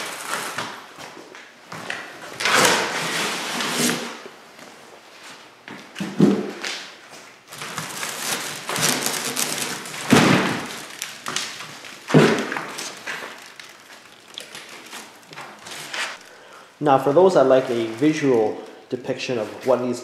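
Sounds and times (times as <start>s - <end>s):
packaging rustling and scraping: 0.0s - 0.9s, 2.2s - 4.2s, 7.5s - 16.3s.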